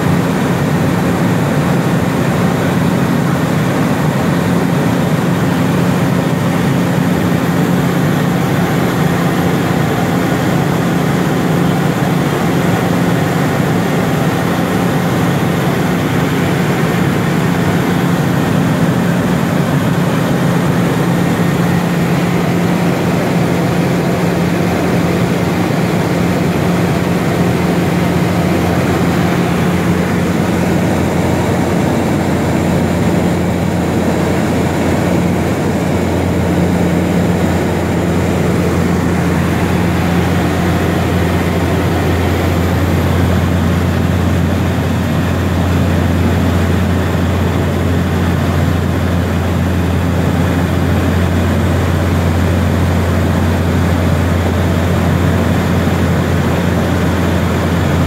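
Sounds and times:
turboprop engine drone in cabin: 0.0s - 58.0s
deeper hum: 5.7s - 48.8s.

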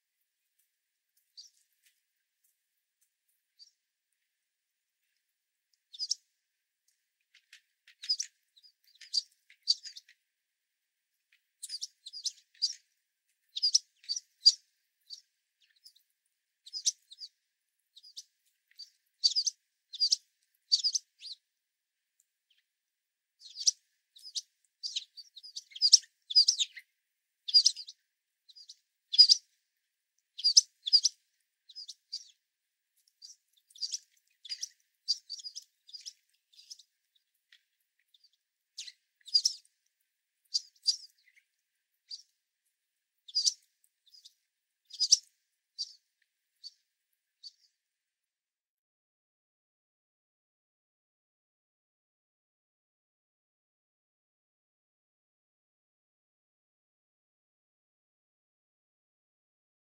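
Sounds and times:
sparrows chip calls: 1.3s - 1.7s, 5.9s - 6.2s, 7.3s - 10.2s, 11.6s - 16.0s, 16.6s - 21.4s, 23.4s - 29.5s, 30.3s - 32.4s, 33.0s - 39.7s, 40.4s - 42.3s, 43.2s - 46.0s, 46.6s - 46.8s.

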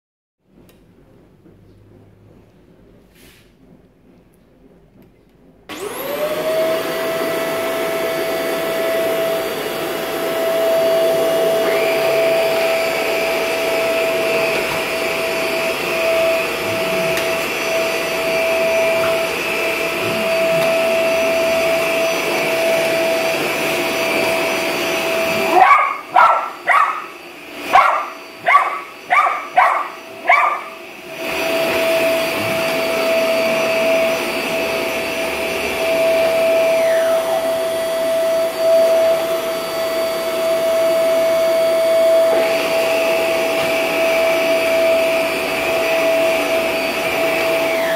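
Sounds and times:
vacuum cleaner motor whine: 5.7s - 47.9s
dog barking: 25.4s - 27.1s, 27.7s - 30.8s.

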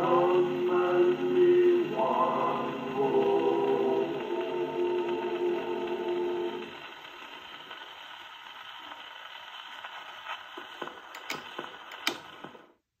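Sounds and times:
song on a gramophone: 0.0s - 12.7s
record surface hiss and crackle: 0.0s - 12.8s
sharp needle clicks: 11.2s - 12.4s.

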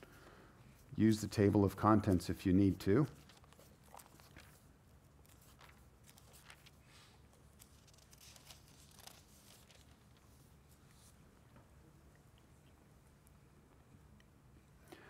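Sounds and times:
thin pages being turned: 0.8s - 11.2s.

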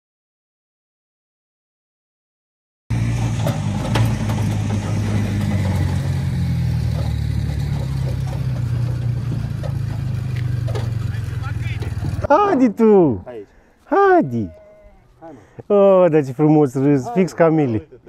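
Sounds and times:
engine idling: 2.9s - 12.4s.

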